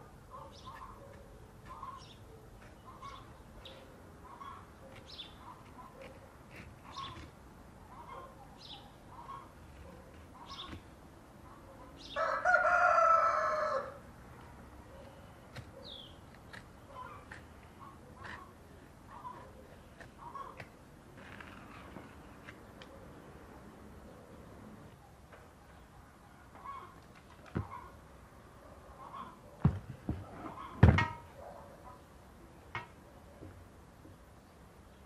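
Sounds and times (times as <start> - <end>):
small birds chirping: 0.3 - 12.3, 14.4 - 20.8
rooster crowing: 12.2 - 14.0.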